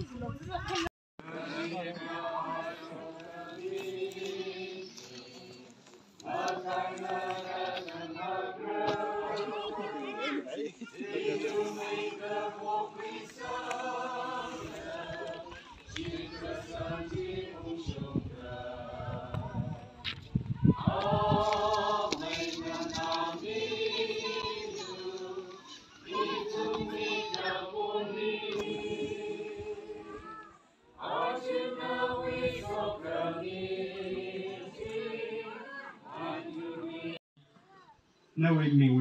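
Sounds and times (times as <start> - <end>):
crowd singing together: 1.2 - 37.2
microphone rumbles: 15.9 - 23.1.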